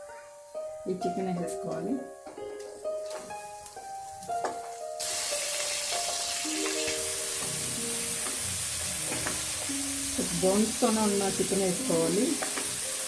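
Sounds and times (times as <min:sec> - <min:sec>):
chicken sizzling in oil: 0:03.0 - 0:13.0.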